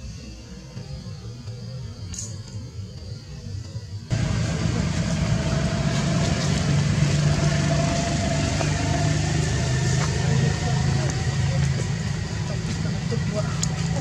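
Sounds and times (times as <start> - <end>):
engine running: 4.1 - 14.0.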